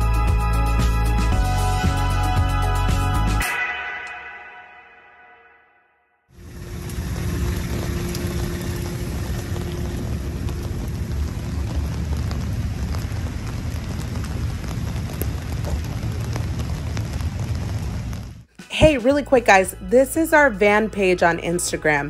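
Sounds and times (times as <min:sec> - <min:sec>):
steady rain falling: 0:06.4 - 0:18.5
low rumble: 0:06.4 - 0:19.0.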